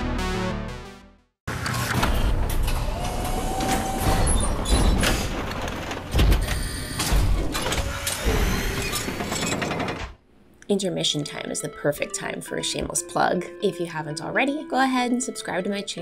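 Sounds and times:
music: 0.0s - 1.4s, 10.8s - 16.0s
spaceship doors sliding open: 1.5s - 10.2s.

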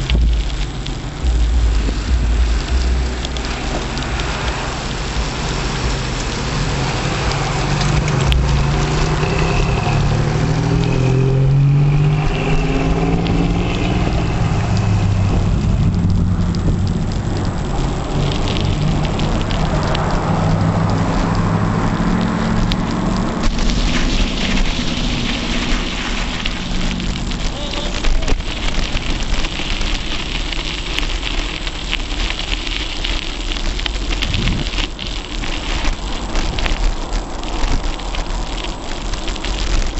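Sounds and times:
car engine accelerating: 0.0s - 30.4s
rolling tyre noise: 0.0s - 39.9s
rushing wind: 0.0s - 39.9s.

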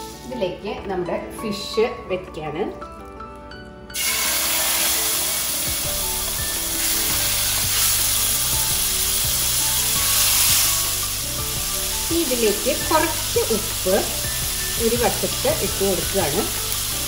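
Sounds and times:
background music: 0.0s - 17.0s
fish sizzling in a pan: 4.0s - 17.0s.

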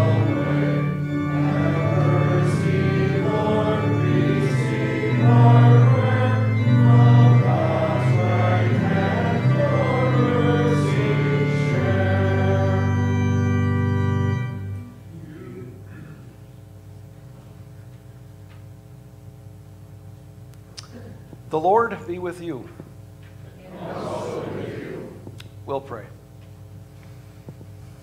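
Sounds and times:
voices singing a hymn: 0.0s - 14.8s, 23.5s - 25.3s
organ playing chords: 0.0s - 16.0s, 23.7s - 25.3s.

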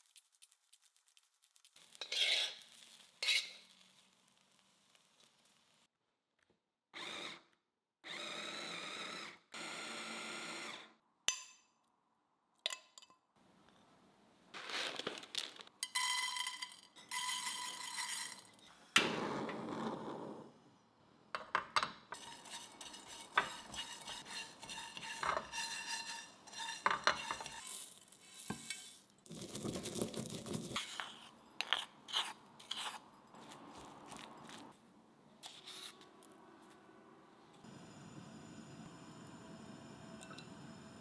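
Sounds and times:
spatula scraping seeds in pan: 0.0s - 4.2s, 14.6s - 18.7s, 22.2s - 34.7s.

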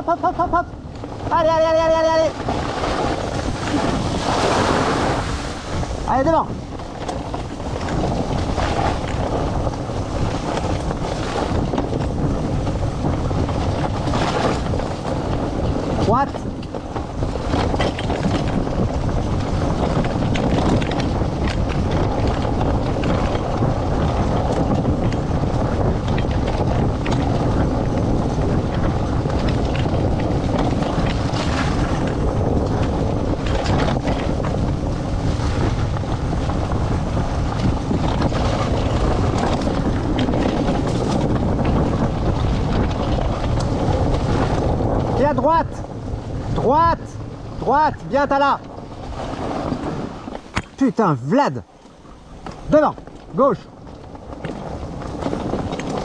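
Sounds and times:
cart rumbling on dirt trail: 0.0s - 56.0s
wind buffeting microphone: 0.0s - 56.0s.

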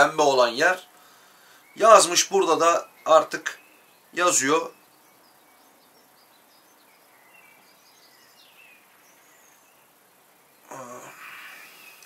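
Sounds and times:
faint bird chirps: 0.0s - 12.0s
low vocal murmur: 10.6s - 12.0s.

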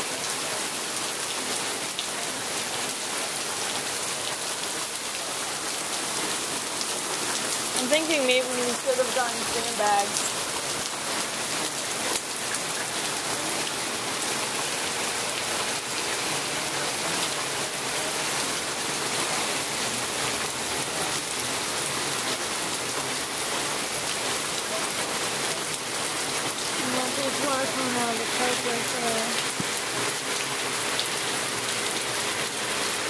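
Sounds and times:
heavy rain on water and pavement: 0.0s - 33.0s.

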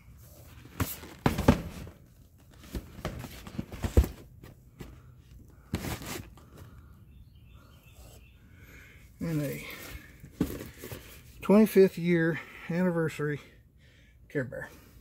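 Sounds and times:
objects knocking and rustling: 0.7s - 5.0s, 9.7s - 11.2s.

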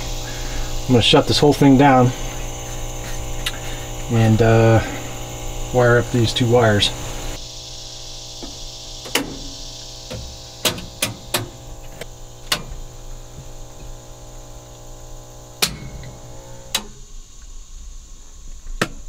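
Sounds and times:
electrical hum: 0.0s - 19.0s
switches clicking off: 8.4s - 14.0s, 15.6s - 17.0s.

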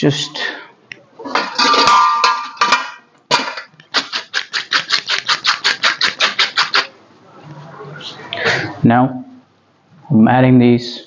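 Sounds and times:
metal cookware clattering: 1.2s - 5.1s
spoon scraping a pot: 3.6s - 6.9s.

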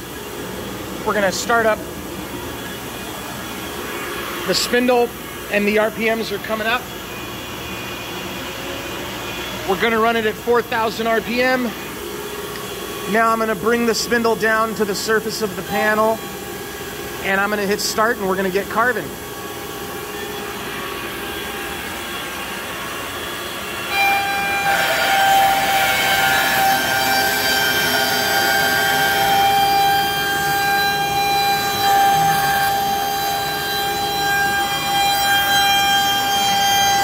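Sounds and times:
router spindle whining: 18.6s - 37.0s
router bit cutting: 23.8s - 37.0s.

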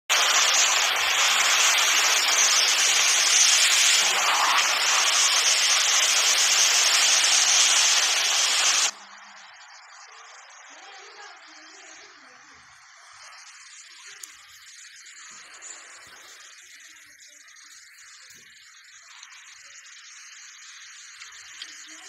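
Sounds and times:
heavy wind-driven rain: 0.1s - 9.0s
faint hiss: 0.1s - 22.0s.

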